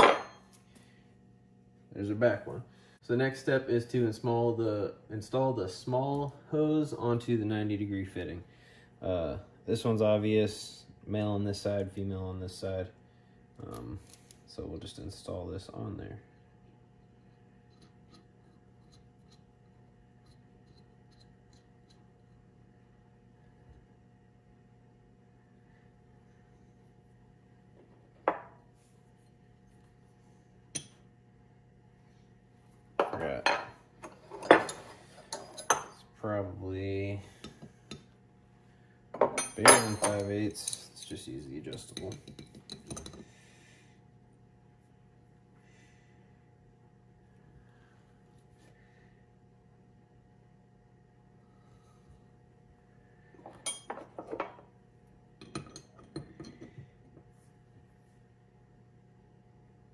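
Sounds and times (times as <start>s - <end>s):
wrench clinking on metal fittings: 39.3s - 43.2s
metal wrenches clinking: 39.4s - 41.2s.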